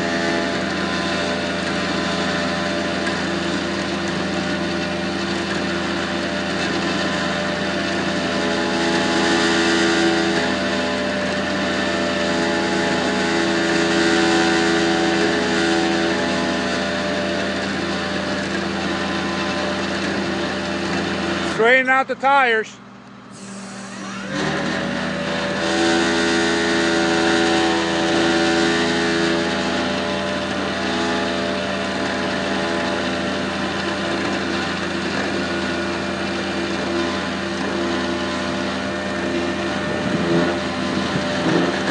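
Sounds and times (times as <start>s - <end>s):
tow truck engine running: 0.0s - 41.9s.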